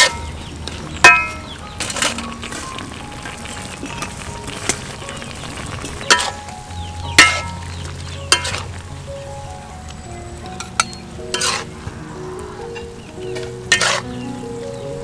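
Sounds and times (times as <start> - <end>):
steady sizzle: 0.0 - 15.0
metal spatula scraping wok: 8.3 - 8.7, 10.7 - 11.8, 12.7 - 14.2.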